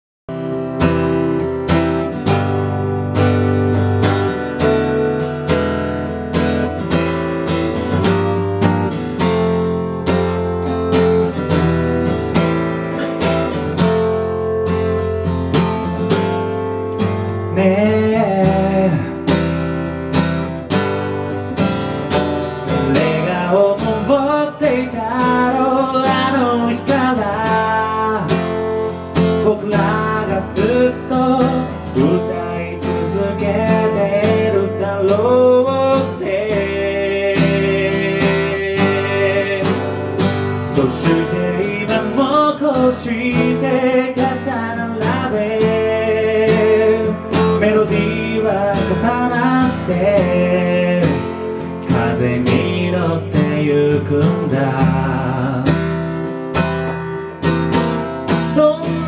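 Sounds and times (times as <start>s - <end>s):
acoustic guitar strumming: 0.3s - 59.0s
man singing: 17.2s - 19.5s, 22.6s - 56.0s, 58.3s - 59.0s.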